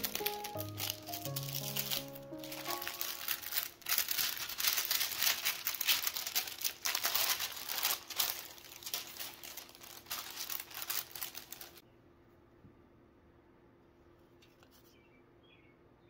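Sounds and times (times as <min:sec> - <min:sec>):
wrapping paper crinkling: 0:00.0 - 0:11.8.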